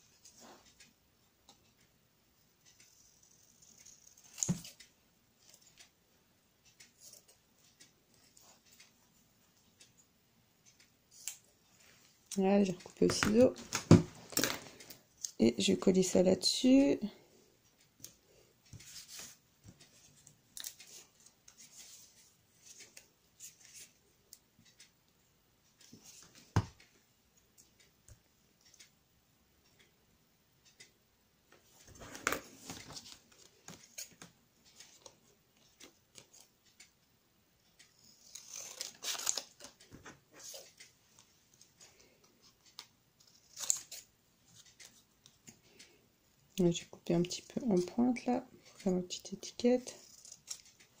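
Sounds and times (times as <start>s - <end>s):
scissors snipping card paper: 38.0s - 39.8s, 49.9s - 51.0s.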